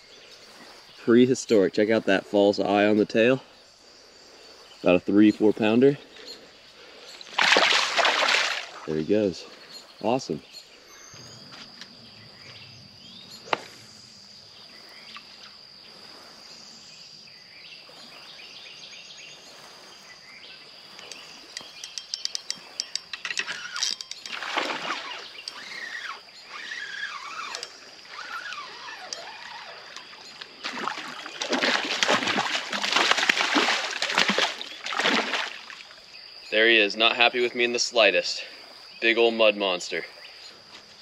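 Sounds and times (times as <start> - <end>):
water splashing: 7.2 - 9.0, 23.4 - 36.1.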